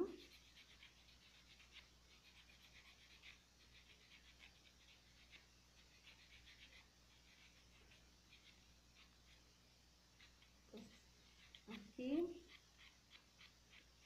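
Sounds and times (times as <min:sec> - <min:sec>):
nail file rasping on nails: 0:00.0 - 0:14.0.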